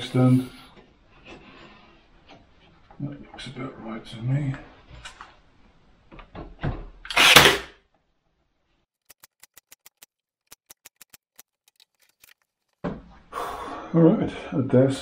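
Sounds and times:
nailer firing into wood: 7.1 - 7.8.

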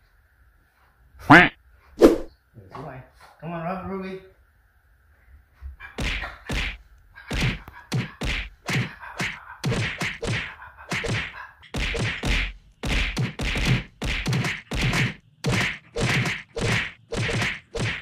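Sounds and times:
punch-like whacks: 2.0 - 2.3, 6.0 - 18.0.

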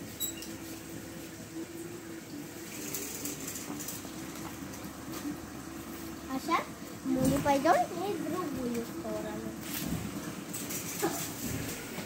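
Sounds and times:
plastic wheels rolling on tiles: 2.7 - 4.5.

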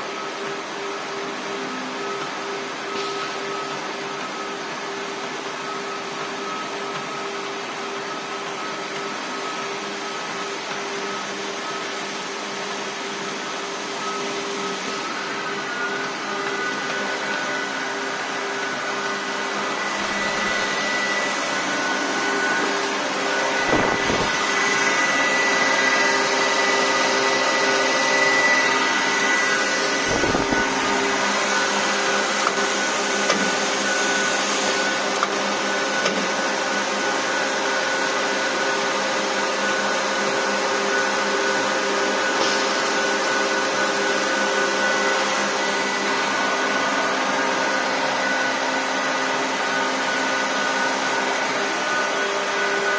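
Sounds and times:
machine motors whining: 0.1 - 39.1.

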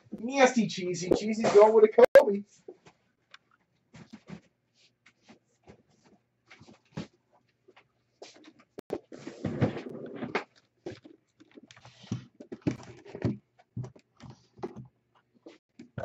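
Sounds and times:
box rustle and bump: 8.9 - 14.9.

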